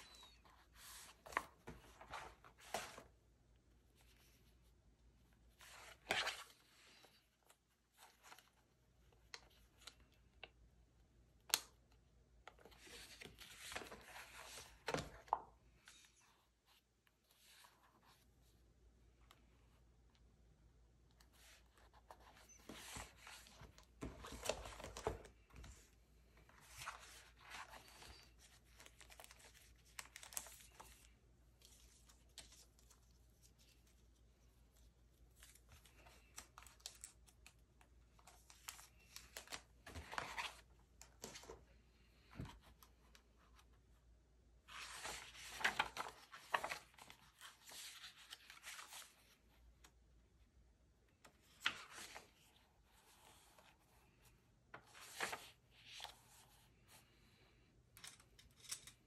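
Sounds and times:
paper pages turning: 0:00.1 - 0:03.1, 0:21.2 - 0:25.8, 0:26.5 - 0:41.6, 0:44.7 - 0:49.4, 0:54.7 - 0:56.6.

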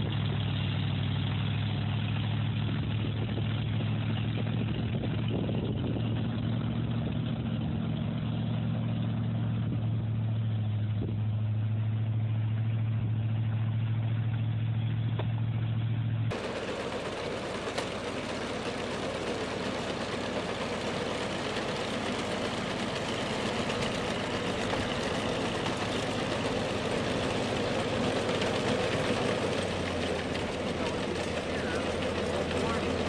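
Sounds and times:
snowcat engine running: 0:00.0 - 0:33.0
vehicle engine humming: 0:00.0 - 0:33.0
clatter and rush of tracks: 0:16.3 - 0:33.0.

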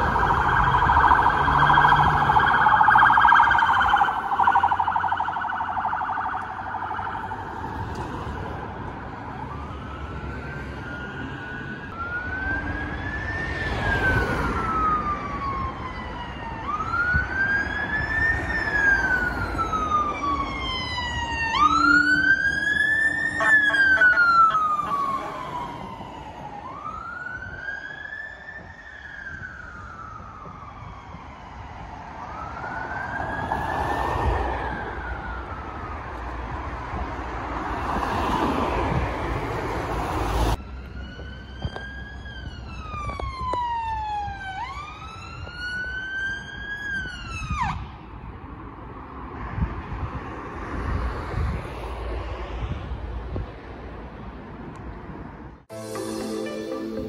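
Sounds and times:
siren with quick sweeps: 0:00.0 - 0:07.4, 0:16.7 - 0:27.5
emergency sirens wailing: 0:00.0 - 0:48.4, 0:55.6 - 0:57.0
road traffic noise: 0:00.0 - 0:57.0.

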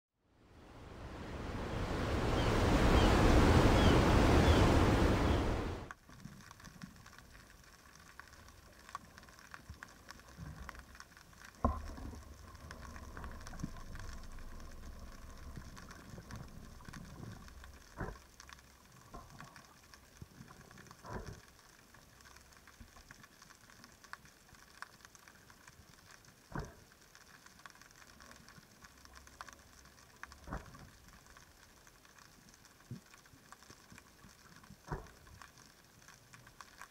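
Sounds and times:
sea waves washing: 0:00.5 - 0:05.9
underwater hiss and crackling: 0:00.6 - 0:36.9
sharp underwater clicks: 0:05.9 - 0:36.9.

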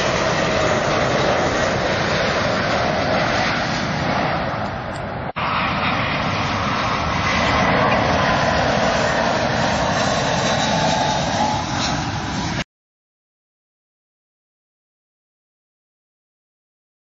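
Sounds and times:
jet engines roaring: 0:00.0 - 0:12.7.

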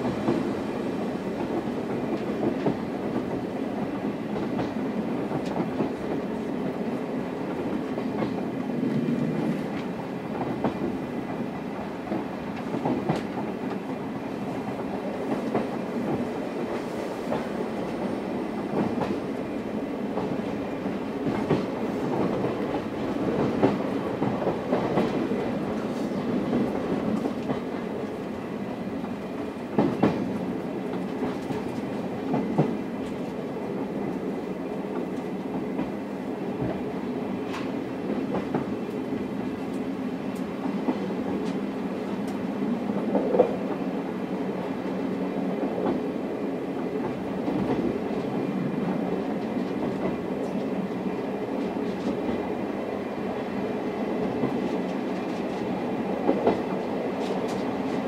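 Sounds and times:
train wheels rumbling on rail: 0:00.0 - 0:58.0
clicks and knocks from track: 0:37.5 - 0:38.7, 0:54.3 - 0:58.0.

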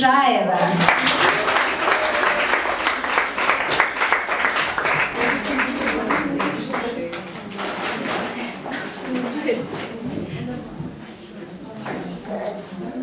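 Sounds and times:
audience applauding: 0:00.6 - 0:09.5.

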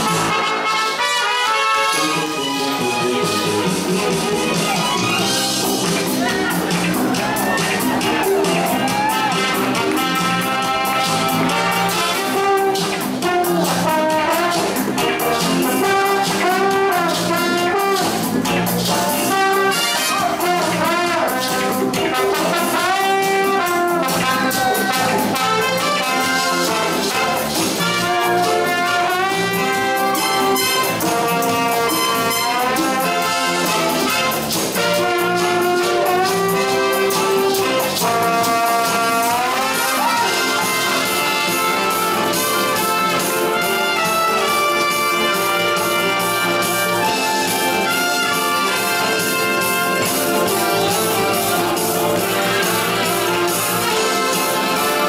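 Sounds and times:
brass band music: 0:00.0 - 0:55.0.

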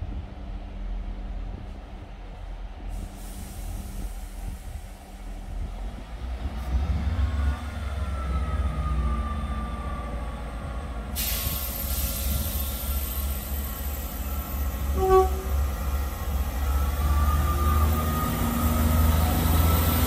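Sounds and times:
air brakes hissing: 0:02.9 - 0:05.4, 0:11.1 - 0:15.0.

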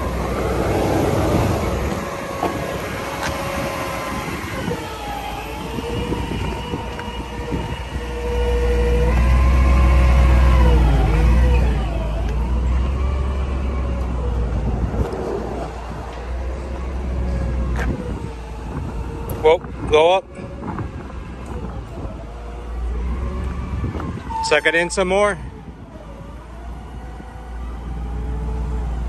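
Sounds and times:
truck engine running: 0:00.0 - 0:19.8
engine whine: 0:00.0 - 0:29.0.

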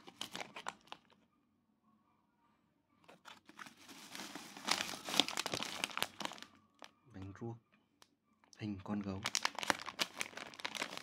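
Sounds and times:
plastic bag crinkling: 0:00.0 - 0:01.2, 0:03.3 - 0:06.9, 0:09.1 - 0:11.0.

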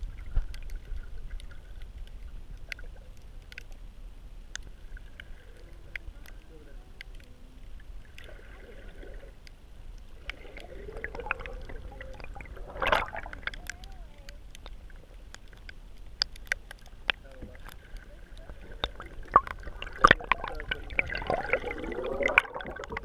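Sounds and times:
underwater clicks and crackles: 0:00.0 - 0:23.0
underwater low rumble: 0:00.0 - 0:23.0
burst of water noise: 0:18.7 - 0:23.0.

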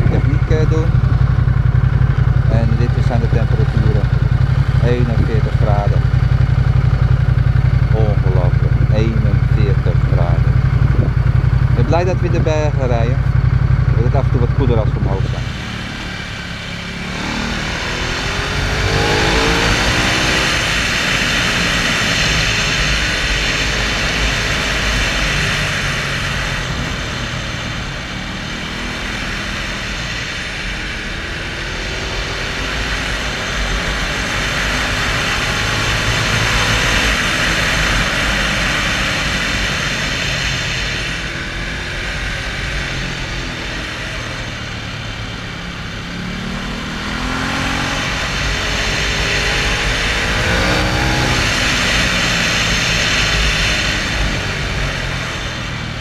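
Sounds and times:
motorcycle engine revving: 0:00.0 - 0:56.0
wind on microphone: 0:10.7 - 0:11.4.

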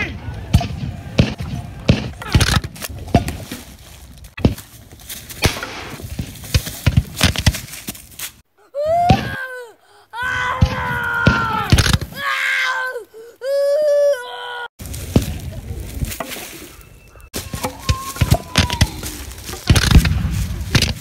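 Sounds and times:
sharp cracks and knocks: 0:00.5 - 0:08.4, 0:10.6 - 0:12.2, 0:17.3 - 0:21.0
children crying and wailing: 0:08.5 - 0:14.7, 0:17.5 - 0:19.5.

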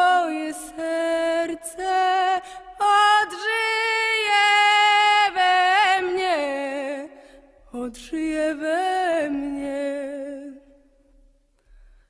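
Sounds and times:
woman singing unaccompanied: 0:00.0 - 0:10.8.

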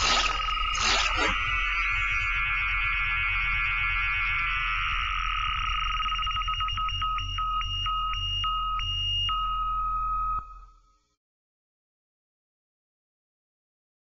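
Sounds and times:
short electronic beeps: 0:00.0 - 0:01.9
two-tone electronic trill: 0:00.0 - 0:07.1.

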